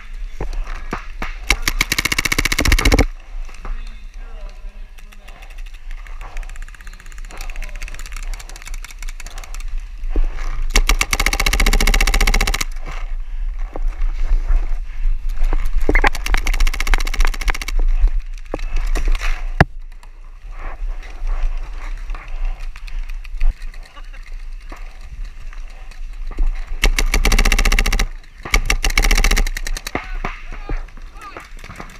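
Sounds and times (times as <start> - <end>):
paintball marker firing: 1.0 - 3.1, 10.7 - 12.8, 15.9 - 17.8, 26.8 - 30.9.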